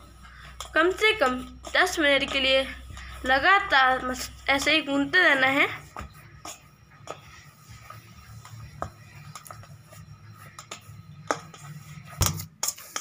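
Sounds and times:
hands kneading dough: 0.0s - 13.0s.

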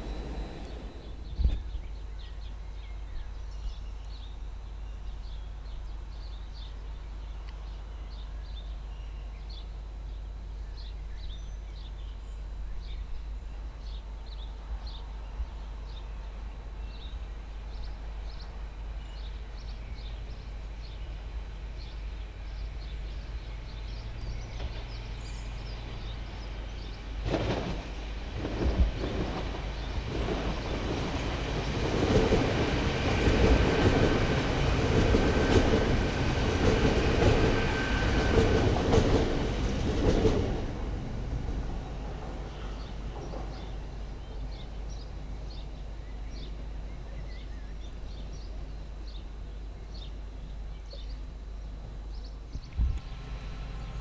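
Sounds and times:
train approaching: 0.0s - 2.5s, 20.1s - 50.1s, 53.0s - 54.0s
low background rumble: 0.0s - 4.2s.

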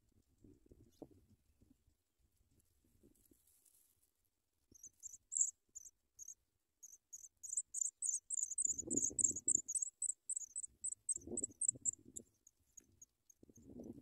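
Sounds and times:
nestlings chirping high: 4.8s - 12.3s.

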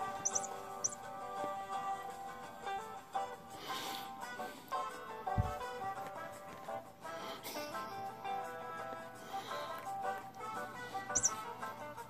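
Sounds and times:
plucked instrumental melody: 9.8s - 11.8s.

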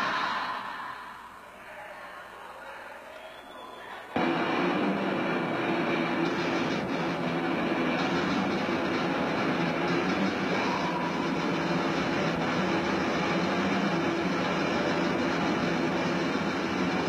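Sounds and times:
distorted metal band playing: 4.2s - 17.0s.

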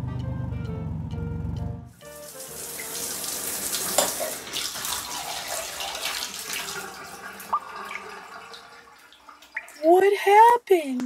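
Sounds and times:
water drip: 2.0s - 10.6s
water pouring onto plastic toy: 2.2s - 9.9s.

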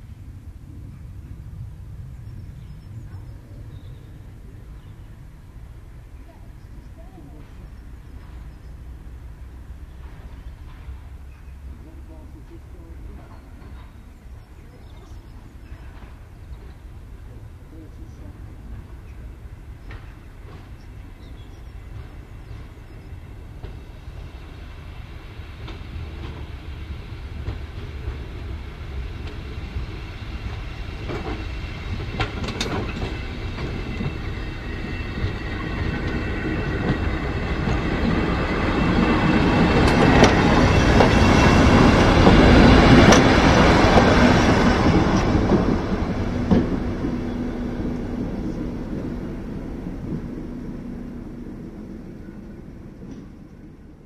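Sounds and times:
diesel locomotive passing: 0.0s - 54.0s
wheels clanking over rail joints: 30.4s - 50.6s.

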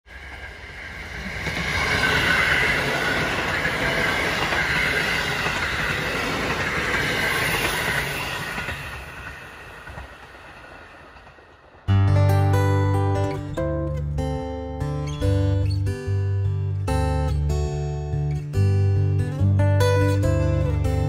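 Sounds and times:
electric train passing: 0.1s - 15.8s.

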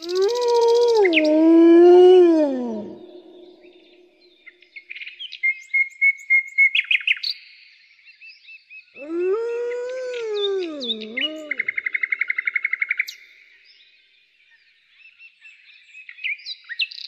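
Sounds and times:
wolf howl: 0.0s - 3.8s, 9.0s - 11.9s
songbirds chirping: 0.0s - 5.4s, 7.2s - 12.1s.

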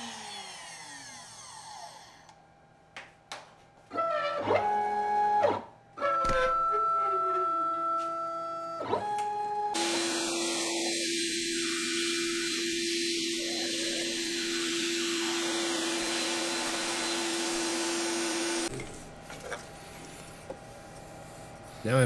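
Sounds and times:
vacuum hose sucking wood chips: 9.8s - 18.7s.

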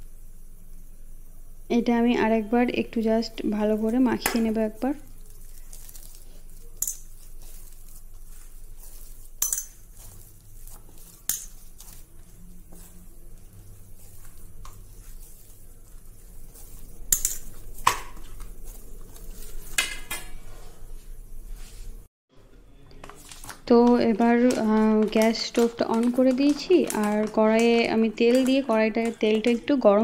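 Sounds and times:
dough being kneaded: 0.0s - 22.1s, 23.0s - 30.0s
low steady hum: 0.0s - 22.1s.

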